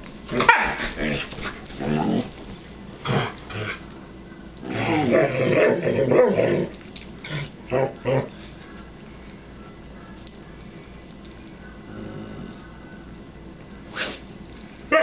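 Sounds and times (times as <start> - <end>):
dogs play-growling: 0.2 - 4.0, 4.6 - 8.6, 11.8 - 12.7.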